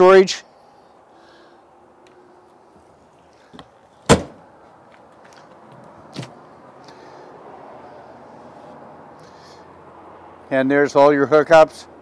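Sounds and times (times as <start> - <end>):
storage compartment door slamming: 4.0 - 4.4.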